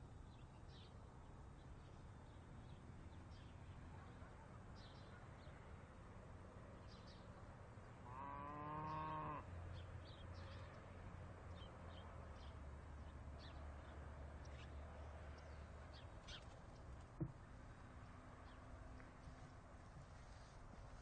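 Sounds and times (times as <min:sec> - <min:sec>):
cow mooing: 0:08.0 - 0:09.5
bird chirps: 0:15.4 - 0:16.6.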